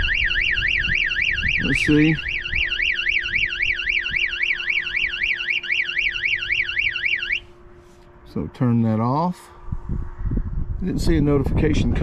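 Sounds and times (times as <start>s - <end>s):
warbling alarm siren: 0.0s - 8.4s.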